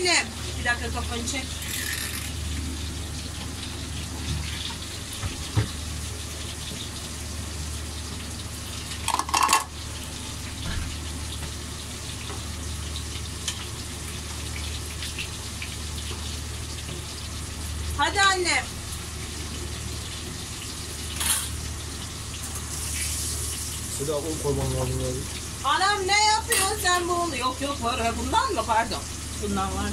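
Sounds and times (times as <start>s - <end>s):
food frying in hot oil: 0.0s - 29.9s
kitchenware clinking: 9.0s - 9.8s, 26.5s - 26.8s.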